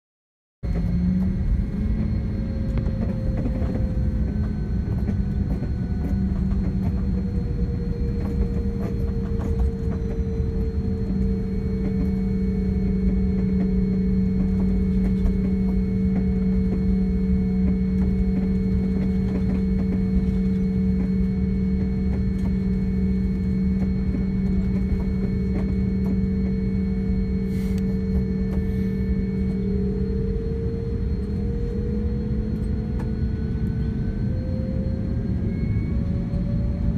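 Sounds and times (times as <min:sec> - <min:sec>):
jet engine rumble and whine: 0:00.6 - 0:36.9.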